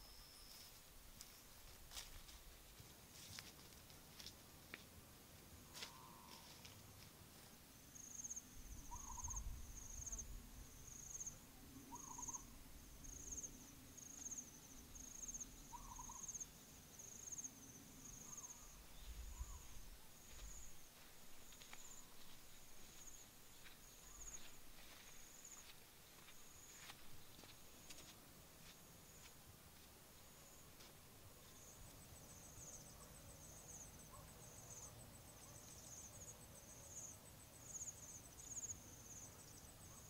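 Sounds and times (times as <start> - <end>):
bird hooting calls: 5.9 - 6.5, 8.9 - 9.5, 11.9 - 12.5, 15.7 - 16.3.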